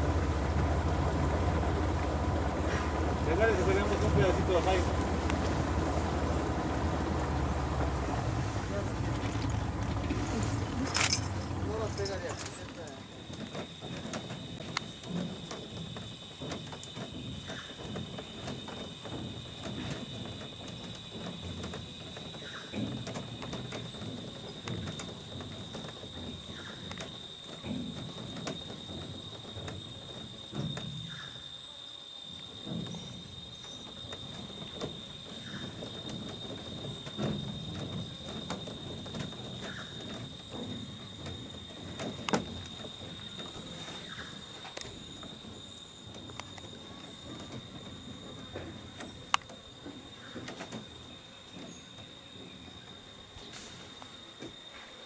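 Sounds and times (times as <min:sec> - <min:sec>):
insects droning: 0:00.0 - 0:55.0
light clicks and knocks: 0:32.4 - 0:52.0.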